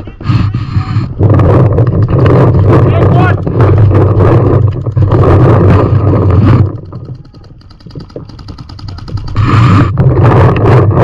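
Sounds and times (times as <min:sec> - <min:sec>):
wind rumble on microphone: 0:00.0 - 0:11.0
paintball marker shots: 0:06.7 - 0:09.9.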